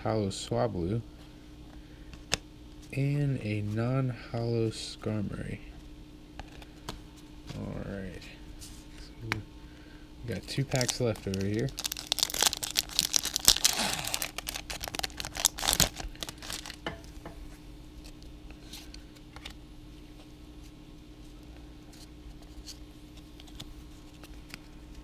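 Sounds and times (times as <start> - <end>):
foil wrapper crinkling and tearing: 10.3 - 16.8.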